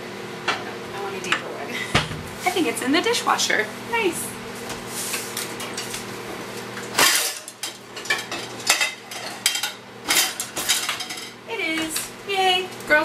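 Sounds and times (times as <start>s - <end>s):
dishes and cutlery clattering: 7.0s - 11.4s.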